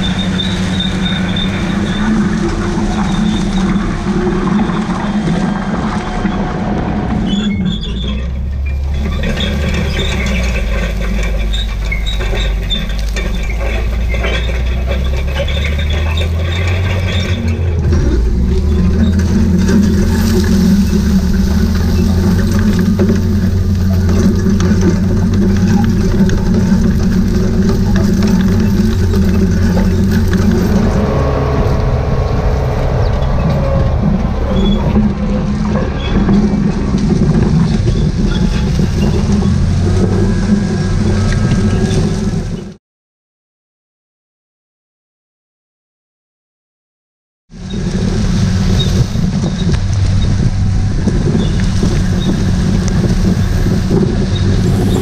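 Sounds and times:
metal scraping and clatter: 0:00.0 - 0:42.6, 0:47.7 - 0:55.0
tillage implement dragging through soil: 0:00.0 - 0:42.7, 0:47.6 - 0:55.0
thin high squeal: 0:53.3 - 0:55.0.

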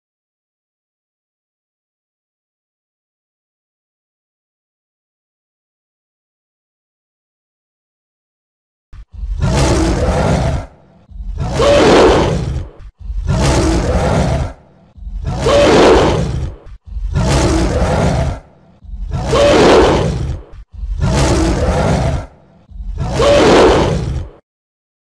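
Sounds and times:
tiger roaring: 0:09.0 - 0:24.4.

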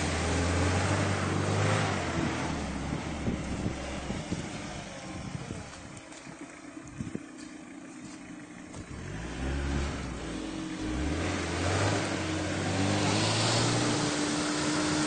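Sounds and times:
suv engine revving hard: 0:00.0 - 0:04.9, 0:08.8 - 0:15.0.

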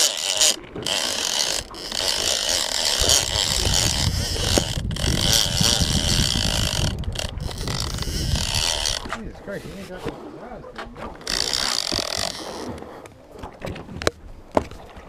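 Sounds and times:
fishing reel drag clicker ratcheting: 0:00.0 - 0:09.2, 0:11.2 - 0:12.8.

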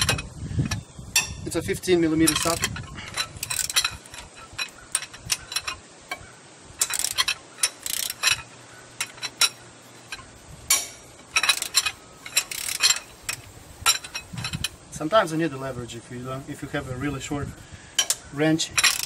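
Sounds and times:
socket ratchet clicking: 0:02.3 - 0:06.2, 0:06.8 - 0:14.8, 0:18.8 - 0:19.0.

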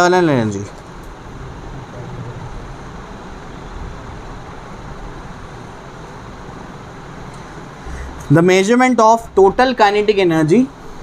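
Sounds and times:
low rumble: 0:01.2 - 0:04.7.

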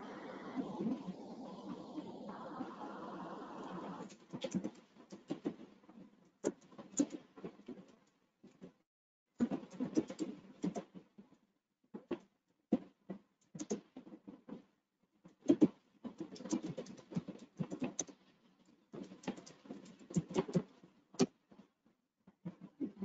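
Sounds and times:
rustling and clicking: 0:15.3 - 0:23.0.

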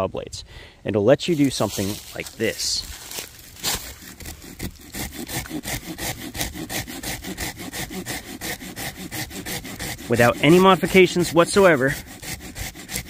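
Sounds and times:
saw blade rasping through log: 0:03.5 - 0:13.0.

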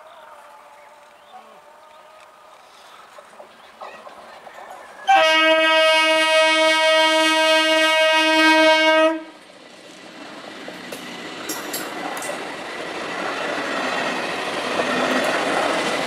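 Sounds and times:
train running on rails: 0:00.0 - 0:16.0
train horn blast: 0:05.1 - 0:09.4.

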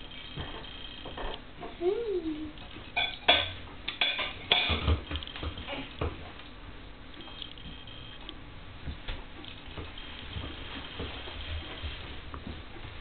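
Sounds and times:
sharp clicks and clattering knocks: 0:00.0 - 0:01.8, 0:02.6 - 0:06.4.

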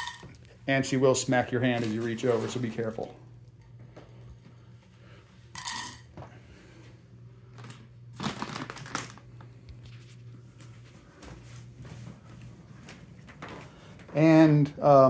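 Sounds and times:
faint steady hum: 0:00.0 - 0:15.0
bag crinkling and clatter: 0:07.6 - 0:09.4.

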